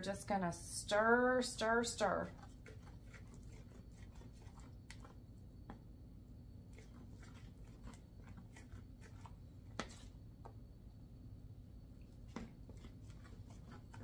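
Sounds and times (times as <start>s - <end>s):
spoon scraping steel bowl: 1.6s - 5.2s.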